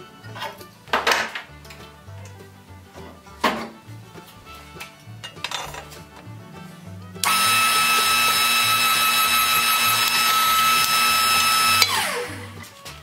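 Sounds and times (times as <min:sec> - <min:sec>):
background music with beat: 0:00.0 - 0:13.0
iron strap bending: 0:04.8 - 0:12.6
power press motor whining: 0:07.2 - 0:12.6.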